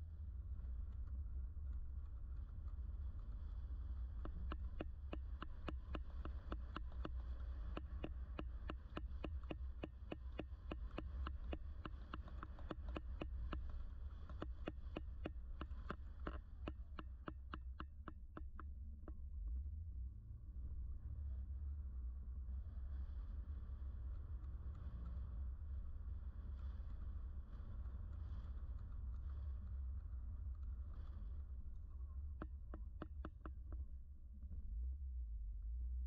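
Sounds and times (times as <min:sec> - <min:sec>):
rapid regular ticking: 0:04.3 - 0:18.6.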